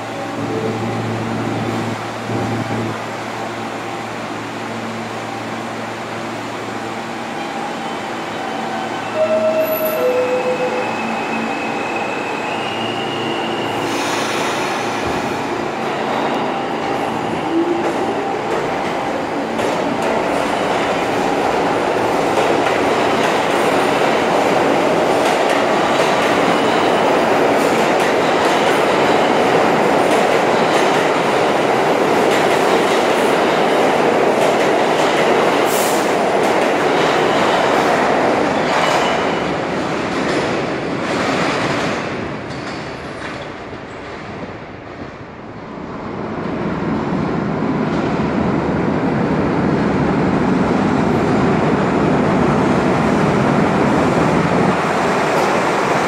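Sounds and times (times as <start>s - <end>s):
train wheels clattering and squealing: 25.1s - 31.1s, 34.4s - 44.4s.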